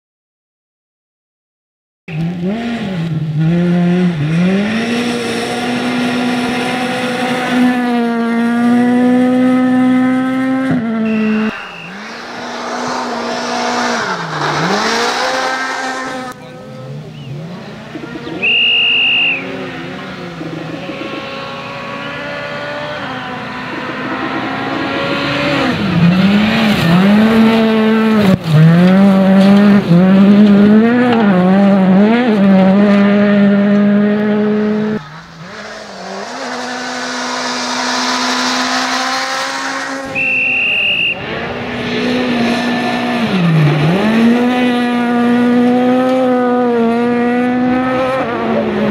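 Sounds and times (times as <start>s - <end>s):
rally car engine revving: 2.1s - 48.9s
brief high steady tone: 11.0s - 12.2s.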